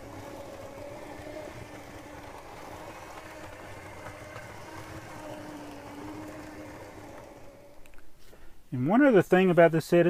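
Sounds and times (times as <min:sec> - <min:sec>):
toy train motor whine: 0:00.0 - 0:08.0.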